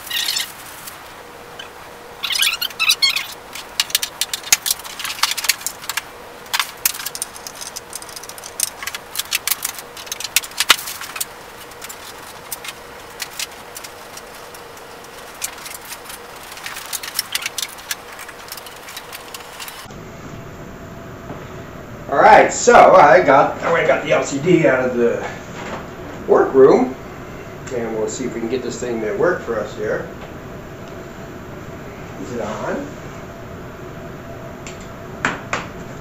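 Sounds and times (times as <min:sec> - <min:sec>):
chirpy high-pitched sound: 0:00.0 - 0:00.6, 0:01.6 - 0:03.4
plastic bag rustling: 0:00.0 - 0:19.9
cables and hardware clattering: 0:02.2 - 0:19.9.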